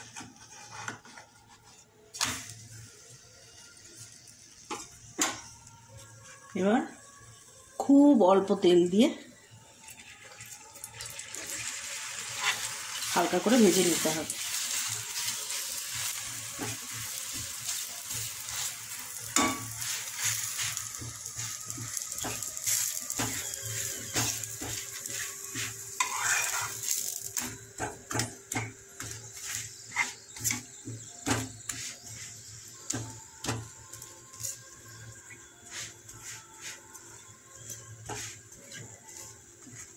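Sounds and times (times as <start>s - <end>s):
bread sizzling in a pan: 0.0s - 8.8s, 9.4s - 39.9s
spatula tapping and scraping pan: 19.4s - 32.3s.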